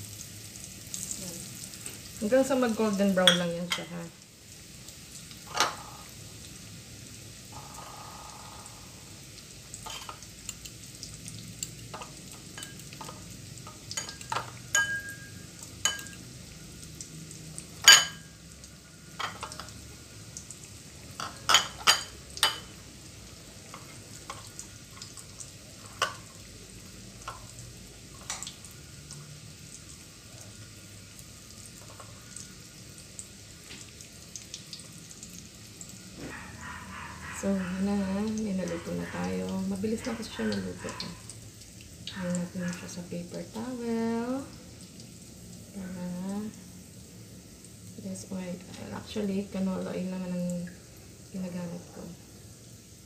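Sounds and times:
oil popping and crackling: 0.0s - 8.4s, 9.0s - 51.9s
deep-frying sizzle: 0.0s - 53.0s.

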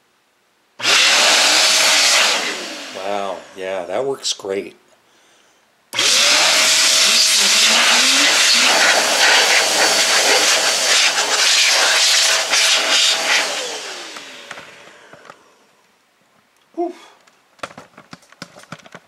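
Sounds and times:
electric air duster running: 0.8s - 3.6s, 6.0s - 15.4s.

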